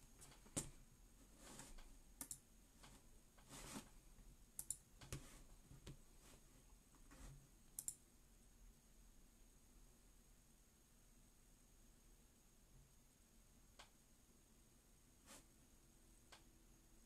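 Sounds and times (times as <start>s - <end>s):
keyboard keys clicking: 4.6s - 5.2s.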